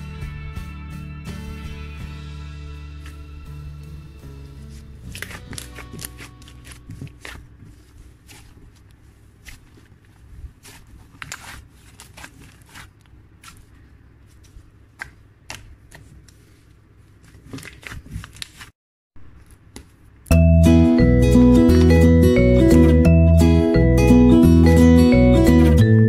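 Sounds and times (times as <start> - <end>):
hands squishing slime: 4.7 - 18.7.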